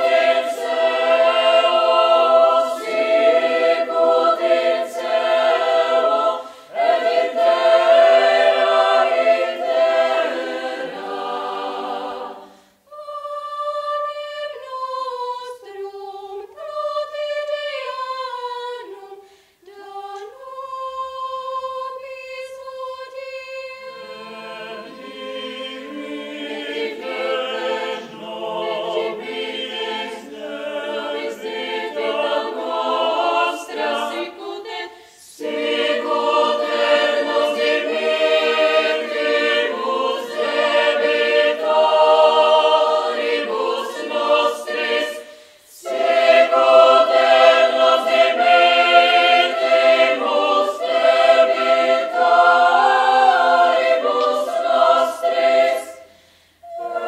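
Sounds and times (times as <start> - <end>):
choir singing a cappella: 0.0 - 57.0.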